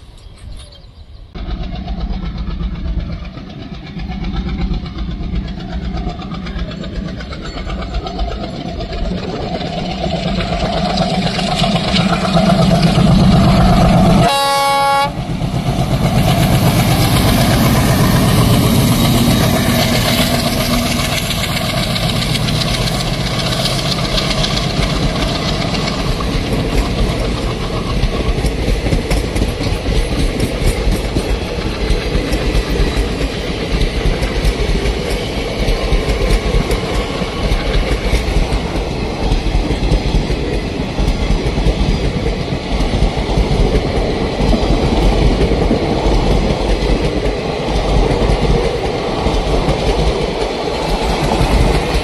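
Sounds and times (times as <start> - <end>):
diesel locomotive engines: 0.0 - 52.0
locomotive horn blast: 14.2 - 15.2.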